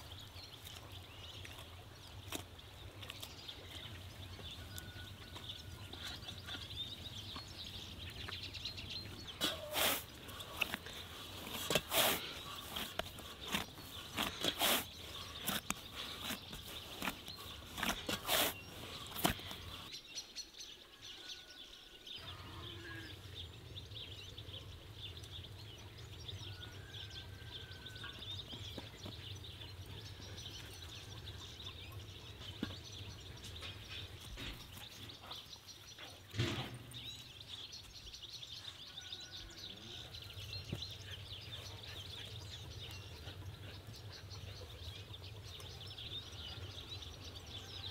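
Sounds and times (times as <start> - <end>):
thump: 36.3 - 36.9
faint bird chirps: 36.9 - 47.9.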